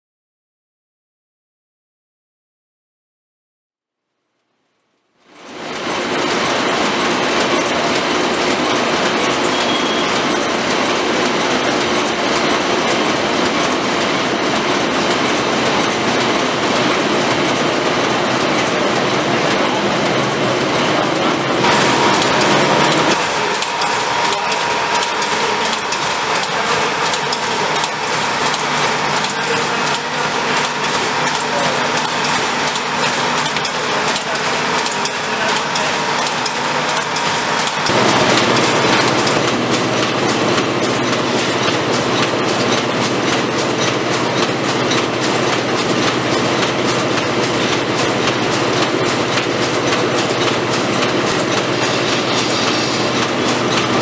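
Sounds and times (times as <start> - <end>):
machine clattering: 5.3 - 54.0.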